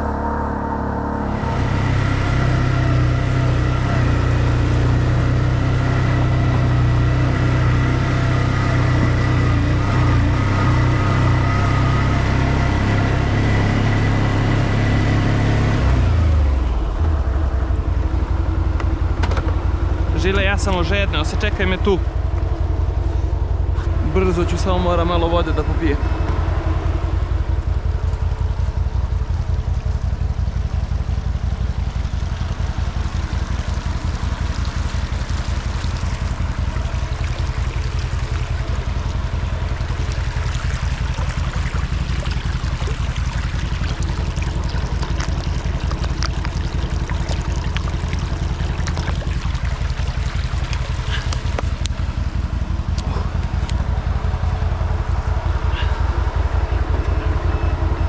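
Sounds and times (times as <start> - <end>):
atv engine idling: 1.3 - 14.9, 15.8 - 58.0
stream trickling over stones: 23.8 - 56.1.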